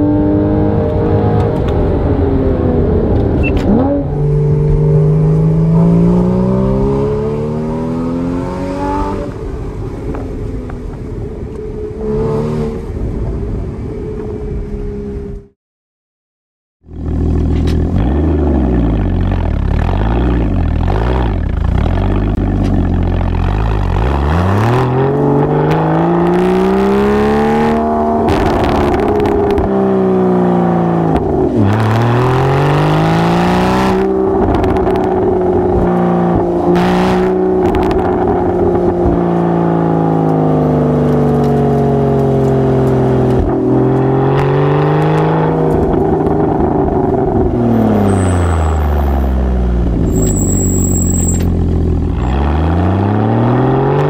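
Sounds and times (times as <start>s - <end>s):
car exhaust revving: 16.9s - 54.0s.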